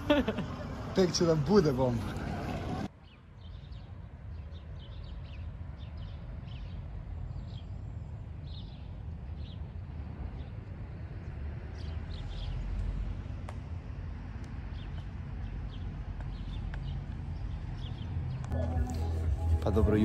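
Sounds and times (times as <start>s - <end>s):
small birds chirping: 3.0s - 9.8s, 11.7s - 13.4s, 14.3s - 19.5s
steady low rumble: 18.4s - 20.0s.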